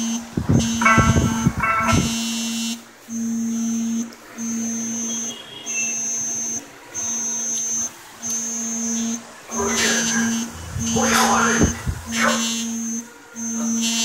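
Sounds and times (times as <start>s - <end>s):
pulsing electronic tone: 0.5s - 14.0s
brief multi-pitch sound: 9.5s - 12.5s.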